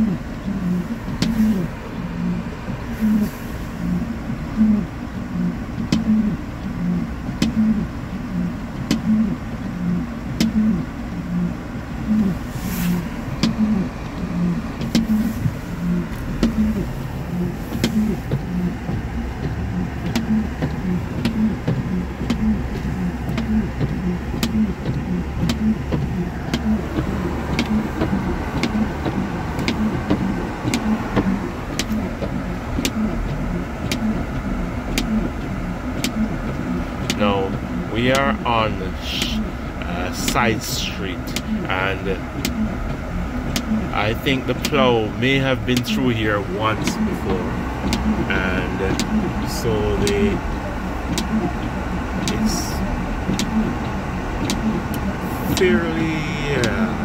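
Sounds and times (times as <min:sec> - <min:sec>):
engine and tyre hum: 0:00.0 - 0:57.0
steady tick-tock: 0:17.8 - 0:50.5, 0:51.1 - 0:57.0.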